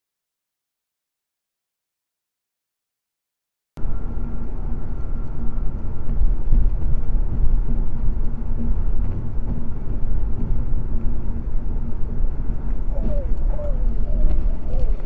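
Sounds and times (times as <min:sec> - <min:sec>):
car road and wind noise: 0:03.8 - 0:15.0.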